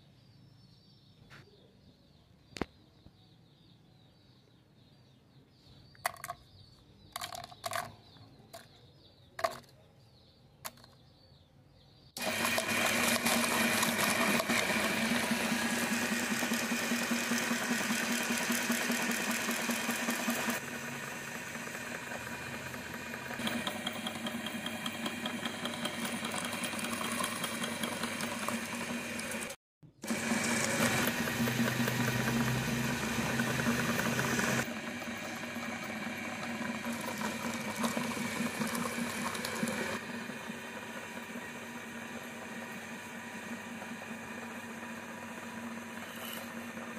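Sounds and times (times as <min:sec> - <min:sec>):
eggs clicking into steel hopper: 0:06.0 - 0:06.4, 0:07.1 - 0:08.7, 0:09.4 - 0:09.8, 0:10.6 - 0:11.0
electric meat grinder motor running: 0:12.2 - 0:46.9.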